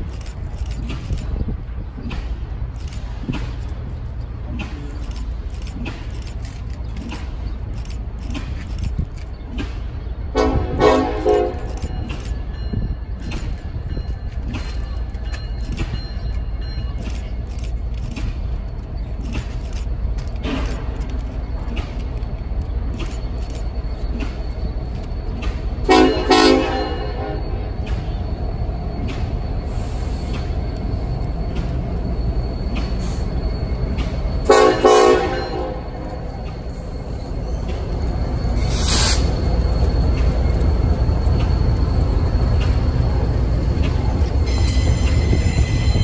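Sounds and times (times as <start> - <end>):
train rumble and clicking: 0.0 - 46.0
locomotive air horn: 10.4 - 11.8, 25.9 - 27.7, 34.5 - 36.2.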